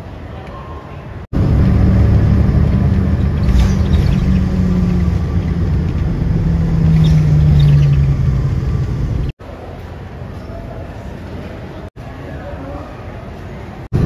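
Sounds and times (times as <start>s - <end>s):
vehicle ride rumble: 1.2s - 9.7s, 13.8s - 14.0s
low hum: 1.4s - 9.4s.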